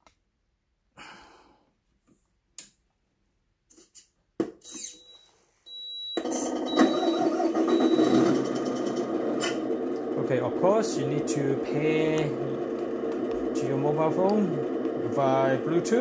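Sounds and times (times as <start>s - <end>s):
high electronic beeping: 5.8s - 9.0s
simulated truck engine through speaker: 6.8s - 16.0s.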